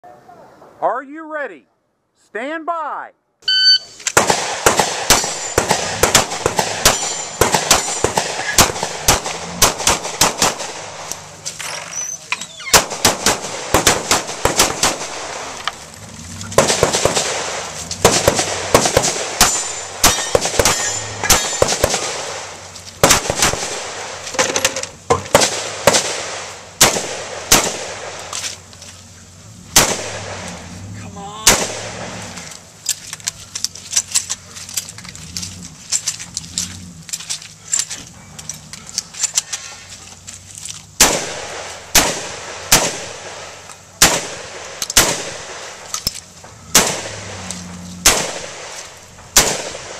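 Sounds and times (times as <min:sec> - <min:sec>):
pistol shots: 0:04.1 - 0:11.3, 0:12.7 - 0:15.8, 0:16.5 - 0:24.3, 0:25.2 - 0:28.3, 0:29.7 - 0:30.7, 0:31.4 - 0:32.4, 0:41.0 - 0:49.9.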